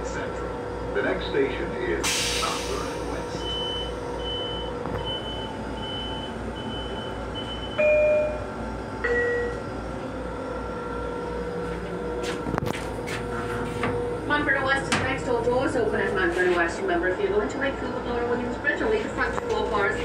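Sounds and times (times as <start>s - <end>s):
low train rumble: 0.0s - 20.0s.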